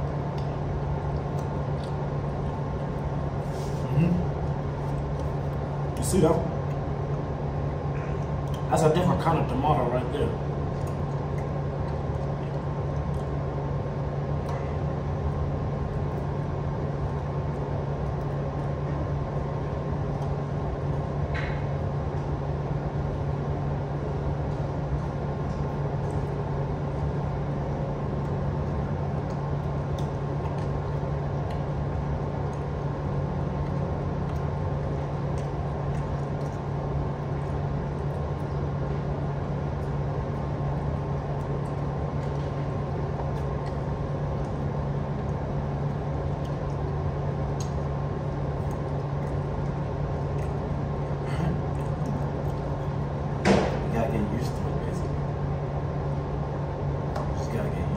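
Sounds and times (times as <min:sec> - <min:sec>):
mechanical hum with low drone: 0:00.0 - 0:57.9.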